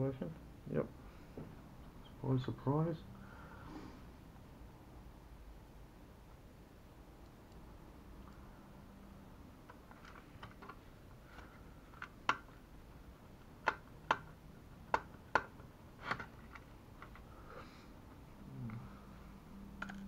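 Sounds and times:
plastic parts clicking: 0:19.8 - 0:20.0.

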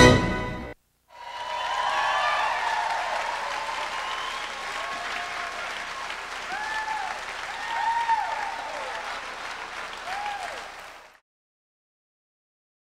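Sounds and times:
audience applauding: 0:01.1 - 0:11.2
high cheers: 0:01.1 - 0:11.2.

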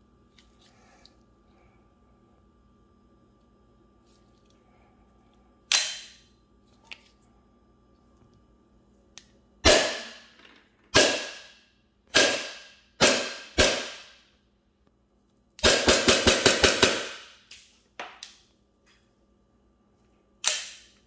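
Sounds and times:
airsoft pistol shots: 0:09.6 - 0:10.3, 0:11.0 - 0:14.2, 0:15.6 - 0:17.4.

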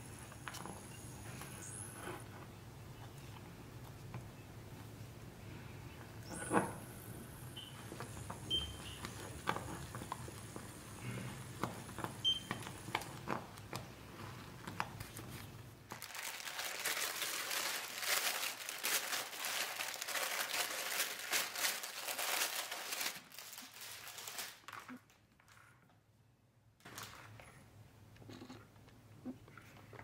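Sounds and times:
plastic packaging crinkling: 0:11.9 - 0:25.8.

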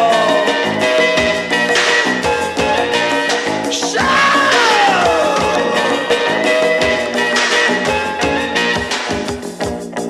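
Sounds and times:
sung song music: 0:00.0 - 0:10.0.

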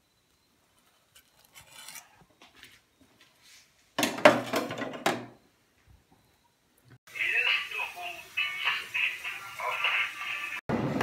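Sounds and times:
faint kitchen scrapes: 0:00.7 - 0:04.0
utensils knocking and clattering: 0:04.0 - 0:05.4.

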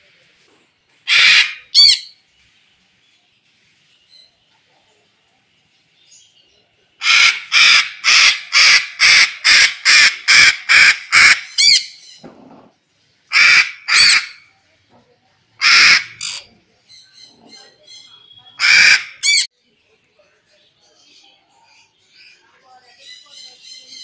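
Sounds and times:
cockatoo screeching: 0:01.1 - 0:02.1, 0:07.0 - 0:11.9, 0:13.3 - 0:14.4, 0:15.6 - 0:16.5, 0:18.6 - 0:19.5.

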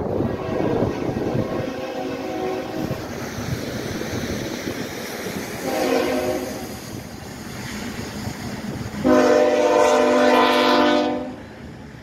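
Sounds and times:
locomotive air horn chord: 0:00.2 - 0:02.9, 0:05.6 - 0:06.6, 0:09.0 - 0:11.4.

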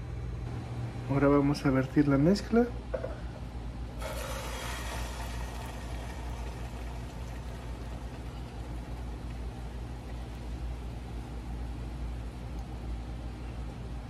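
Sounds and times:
low hum: 0:03.0 - 0:13.6
food sizzling in hot oil: 0:04.0 - 0:08.1.

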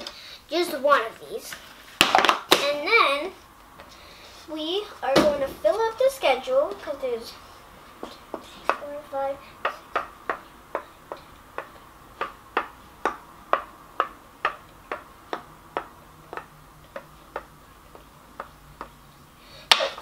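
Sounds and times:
toy piece tapping on wooden board: 0:09.6 - 0:18.9.

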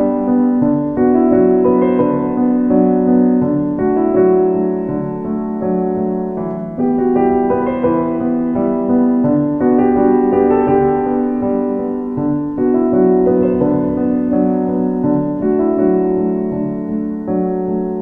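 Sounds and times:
slow piano music: 0:00.0 - 0:18.0.

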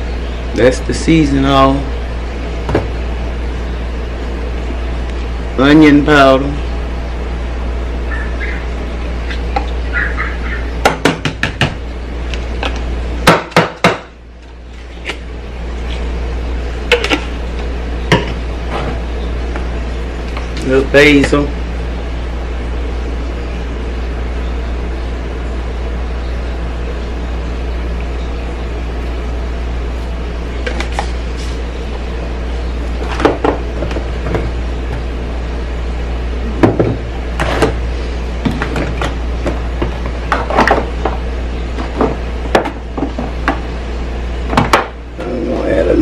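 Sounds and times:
pots boiling on gas stove: 0:20.3 - 0:21.6.

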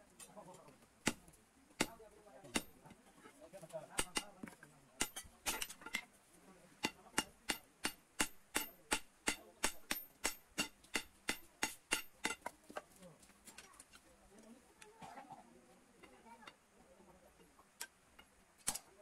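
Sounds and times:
hammer striking metal on anvil: 0:01.8 - 0:02.8, 0:04.0 - 0:04.4, 0:05.0 - 0:06.0, 0:06.8 - 0:12.5.

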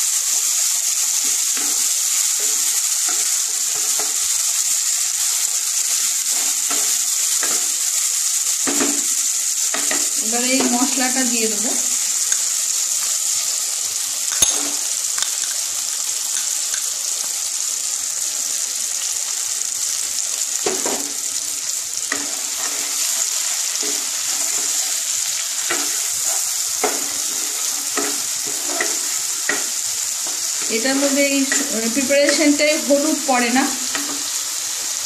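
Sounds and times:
oil sizzling in a pan: 0:00.0 - 0:35.0
spatula scraping a pan: 0:01.1 - 0:04.3, 0:22.0 - 0:34.9.

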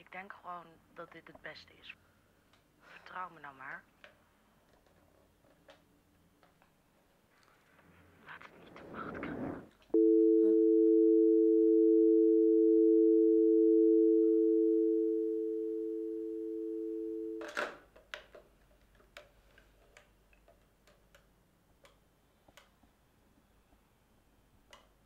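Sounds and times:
telephone dial tone: 0:10.0 - 0:17.4.

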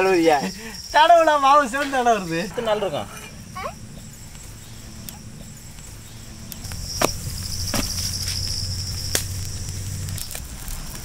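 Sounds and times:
insect trilling: 0:00.0 - 0:11.0
low hum: 0:02.2 - 0:11.0.

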